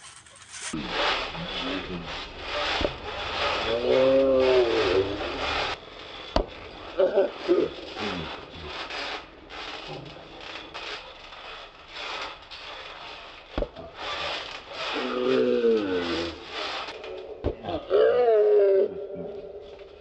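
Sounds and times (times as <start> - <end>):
trampoline creaking and rustling: 0.0 - 20.0
sharp thumps on trampoline: 13.5 - 14.9.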